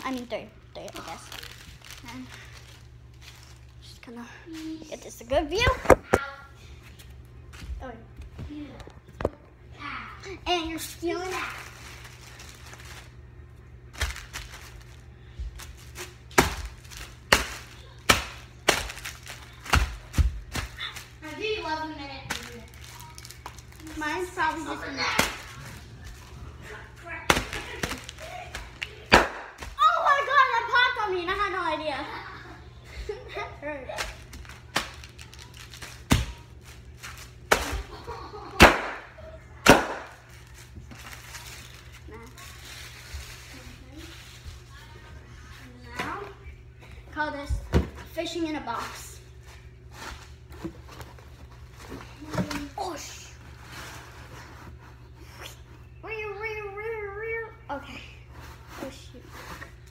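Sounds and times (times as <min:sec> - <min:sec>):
plastic bottles crushed underfoot: 0:16.0 - 0:21.1.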